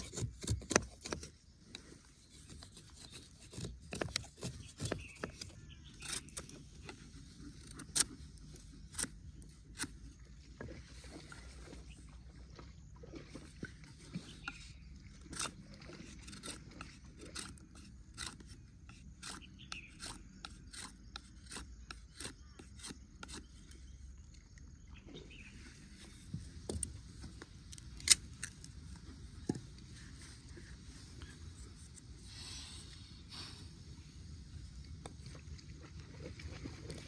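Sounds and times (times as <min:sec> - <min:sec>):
knife shaving wood: 0:00.0 - 0:10.2, 0:15.2 - 0:23.7.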